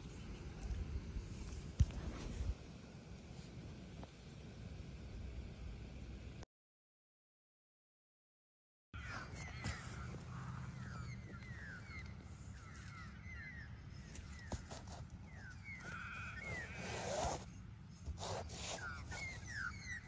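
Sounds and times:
steady low rumble: 0:00.0 - 0:06.4
small birds chirping: 0:09.0 - 0:20.0.

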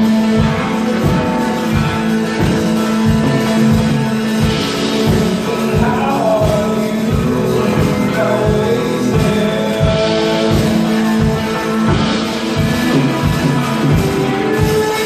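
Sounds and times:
rock band playing: 0:00.0 - 0:15.0
person singing: 0:03.6 - 0:15.0.

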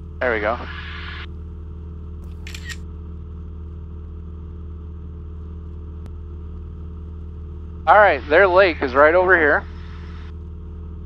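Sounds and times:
light aircraft engine drone: 0:00.0 - 0:11.0
phone camera shutter: 0:02.2 - 0:02.8.

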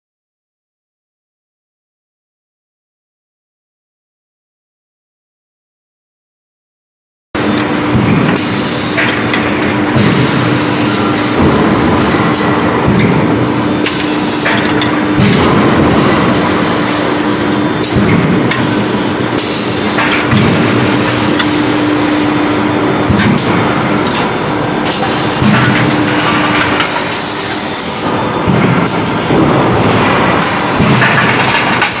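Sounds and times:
forging machine humming: 0:07.4 - 0:32.0.

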